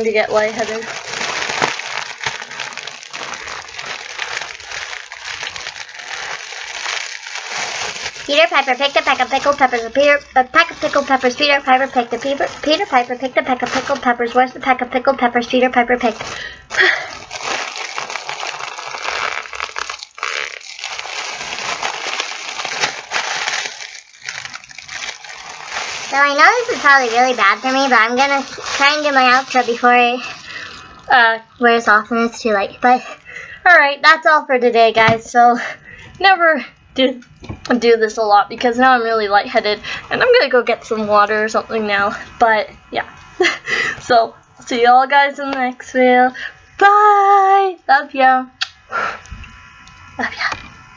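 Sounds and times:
foil balloon crinkling: 0.0 - 14.5, 16.0 - 31.3.

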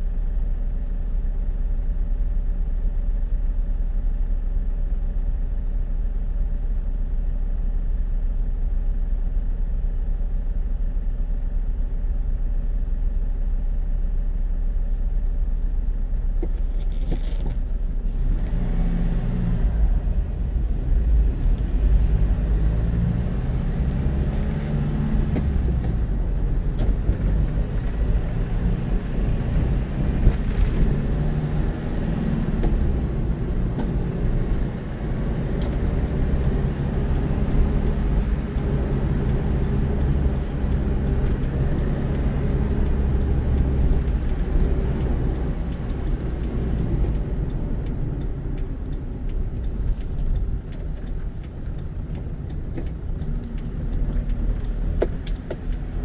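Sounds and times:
road noise: 14.9 - 56.0
car pulling away: 16.1 - 56.0.

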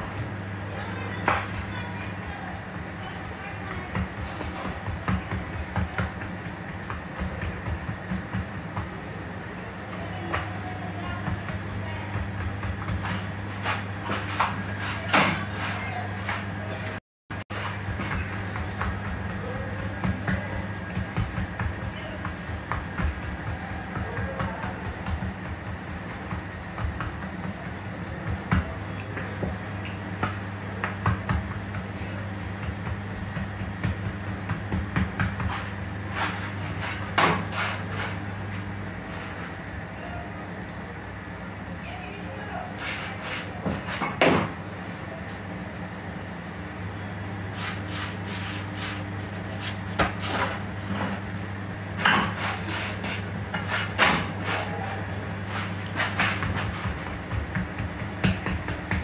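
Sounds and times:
dough knocking on stone: 56.0 - 59.0.

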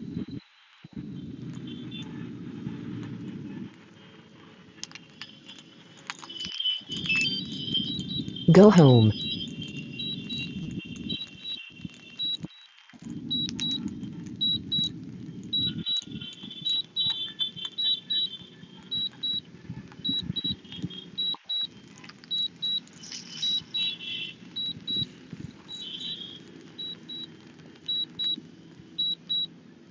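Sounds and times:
steady low rumble: 0.0 - 4.9, 6.9 - 8.5, 9.1 - 17.1, 18.2 - 23.6.

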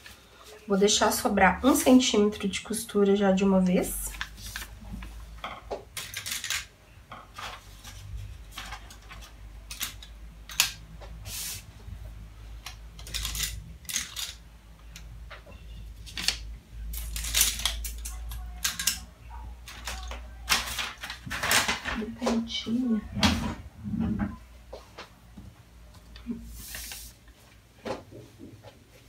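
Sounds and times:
paper rustling and crackling: 4.1 - 5.2, 7.3 - 10.1, 19.6 - 22.5.

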